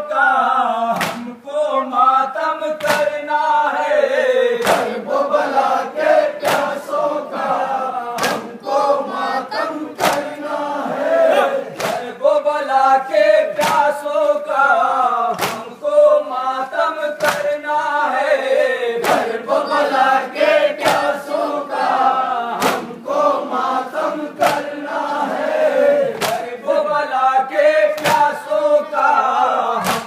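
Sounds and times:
men chanting in unison: 0.0 - 30.0
collective chest slaps: 1.0 - 1.3, 2.8 - 3.2, 4.6 - 5.0, 6.4 - 6.8, 8.2 - 8.5, 10.0 - 10.3, 11.8 - 12.1, 13.5 - 14.0, 15.3 - 15.7, 17.2 - 17.6, 19.0 - 19.3, 20.8 - 21.2, 22.6 - 23.0, 24.4 - 24.7, 26.2 - 26.5, 28.0 - 28.4, 29.8 - 30.0.

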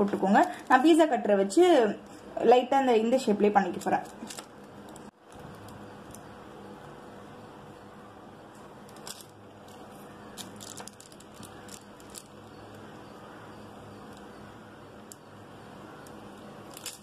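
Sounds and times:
steady low hum: 0.0 - 17.0
butter paper crinkling: 3.6 - 6.4, 8.8 - 12.9, 16.6 - 17.0.

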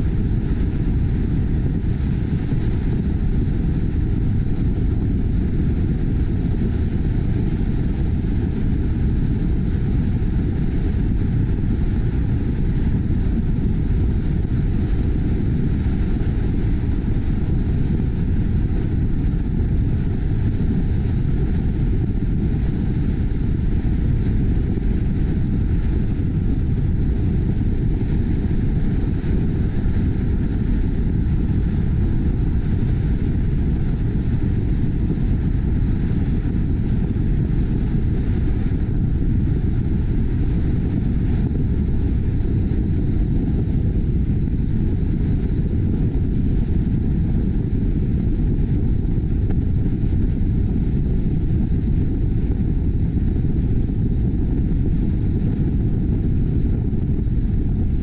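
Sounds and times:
wind noise on moving car: 0.0 - 58.0.

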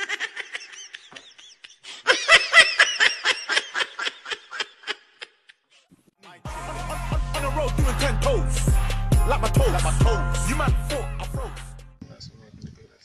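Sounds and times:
person laughing: 0.0 - 5.7
music with steady bass: 6.5 - 12.0.

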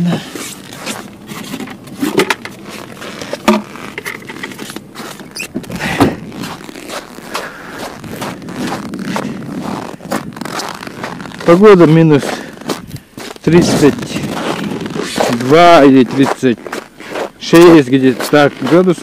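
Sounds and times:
padded suit and gloves rustling: 0.0 - 19.0
plastic container scraping and knocking: 0.1 - 12.0.

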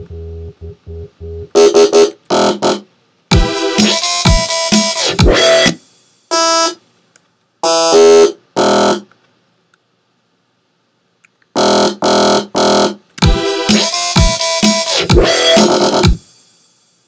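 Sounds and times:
short bright synthesizer notes: 0.0 - 2.5.

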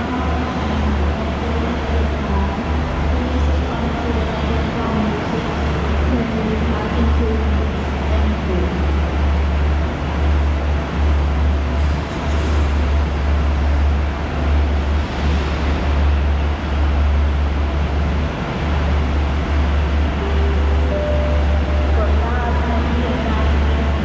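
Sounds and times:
deep rumble: 0.0 - 24.0
echoing noise: 19.2 - 24.0.

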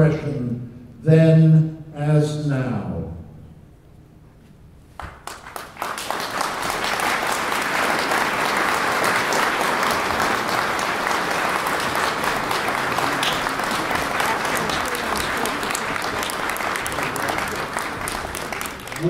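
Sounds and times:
audience applauding: 5.0 - 19.0.

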